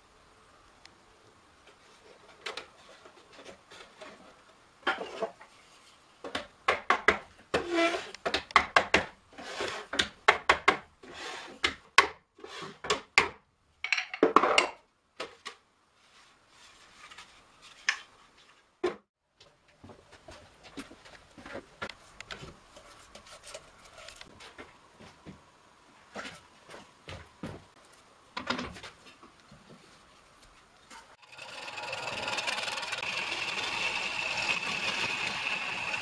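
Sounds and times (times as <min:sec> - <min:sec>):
sharp wooden knocks: 0:06.3 - 0:07.6, 0:08.2 - 0:09.2, 0:10.0 - 0:10.9
hoop scraping on wood: 0:07.6 - 0:08.2, 0:09.3 - 0:10.0.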